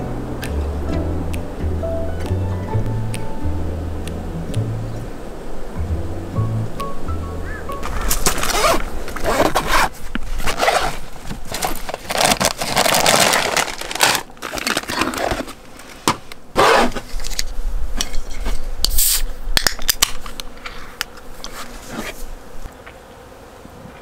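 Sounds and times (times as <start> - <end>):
bags and fabric rustling: 7.8 - 17.4
beer can opening with hiss: 14.0 - 22.2
small clicks and handling: 17.0 - 18.5.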